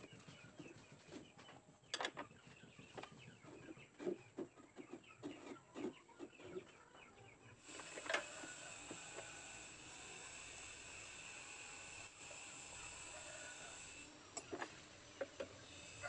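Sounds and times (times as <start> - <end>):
chicken clucking: 0.0 - 9.3.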